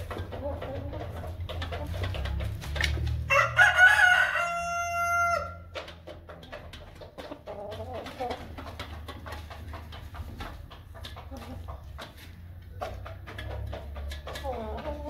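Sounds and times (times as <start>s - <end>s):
chickens clucking: 0.0s - 15.0s
rooster crowing: 3.3s - 5.6s.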